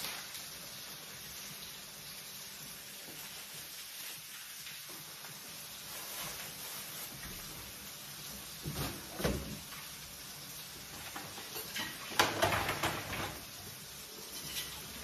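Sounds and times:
vegetables frying in a pan: 0.0s - 15.0s
faint kitchen knocks: 12.1s - 13.5s.

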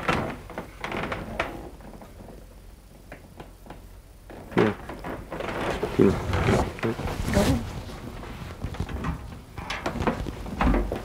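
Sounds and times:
footsteps on wooden boards: 5.0s - 11.0s.

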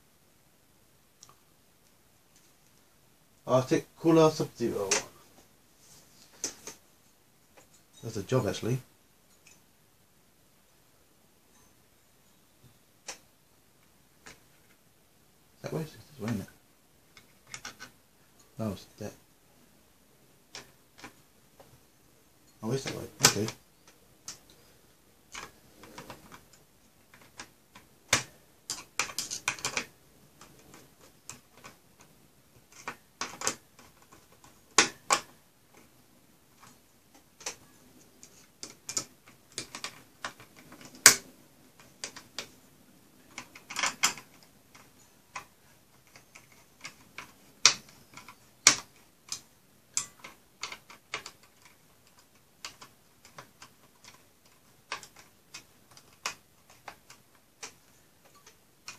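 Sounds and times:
metal clicks and taps: 43.3s - 58.9s.

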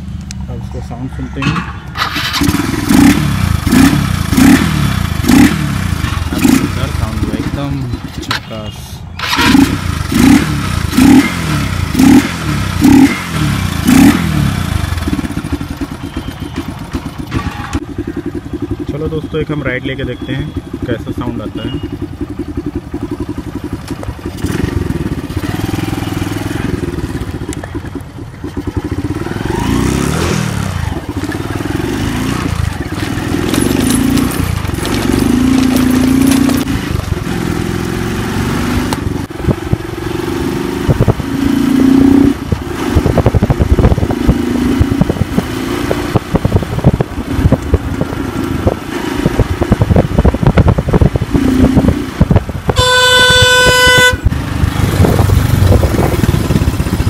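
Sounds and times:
motorcycle engine revving: 0.0s - 57.0s
wind noise on microphone: 39.0s - 57.0s.

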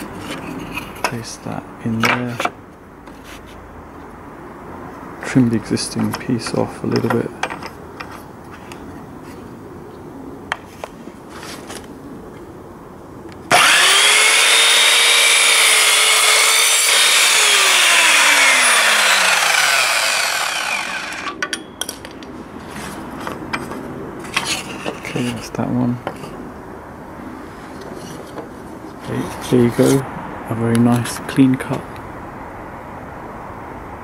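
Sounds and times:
mitre saw cutting wood: 13.5s - 21.4s
saw winding down whine: 13.5s - 21.4s.

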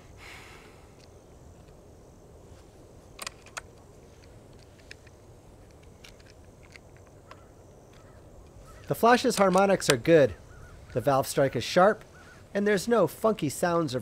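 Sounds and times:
air rifle handling clicks: 3.1s - 11.0s.

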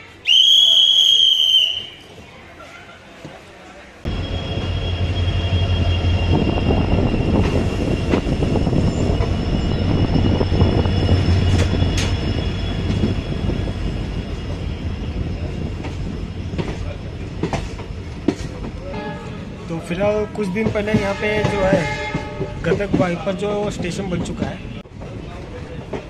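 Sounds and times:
train wheels rumbling on rails: 4.1s - 26.0s
wheels clacking over rail joints: 15.5s - 18.9s.

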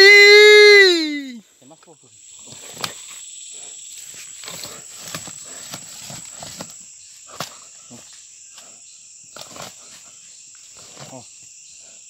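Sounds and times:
insect chorus buzzing: 0.0s - 12.0s
footsteps snapping twigs and leaves: 9.3s - 9.9s.

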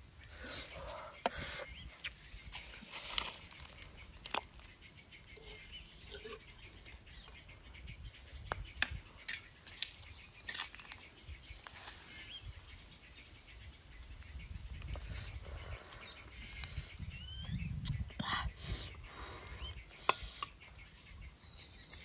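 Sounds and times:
faint bird chirp: 0.0s - 22.0s
low wind-like rumble: 12.2s - 20.0s.

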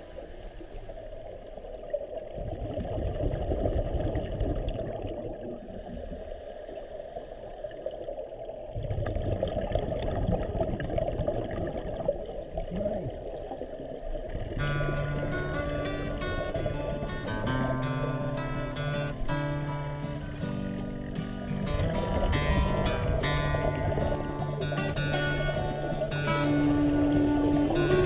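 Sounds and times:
underwater water hiss: 0.0s - 1.9s, 5.1s - 8.8s, 12.0s - 14.5s
regulator bubbles rumbling: 1.2s - 5.6s, 8.5s - 28.0s.

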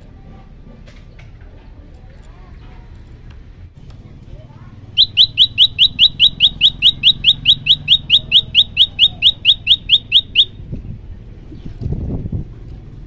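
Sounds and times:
bird singing chip notes: 5.0s - 10.6s.

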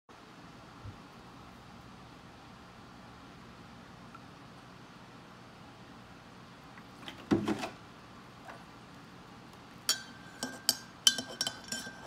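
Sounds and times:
spoon clinking against a mug: 9.9s - 12.0s.

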